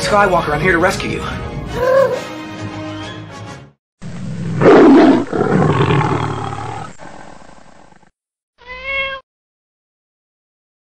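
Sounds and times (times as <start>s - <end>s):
big cat roaring: 4.1s - 8.1s.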